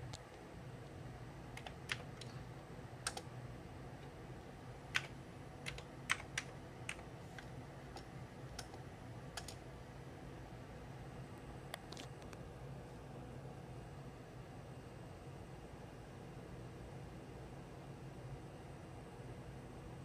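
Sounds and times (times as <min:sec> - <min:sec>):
keyboard keystrokes: 0:01.6 - 0:02.4, 0:03.0 - 0:03.3, 0:04.9 - 0:08.8, 0:09.4 - 0:09.6.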